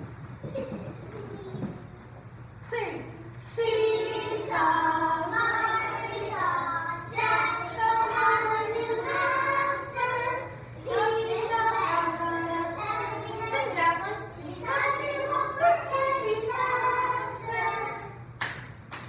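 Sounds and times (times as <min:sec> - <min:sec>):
young children singing: 0:03.4 - 0:18.4.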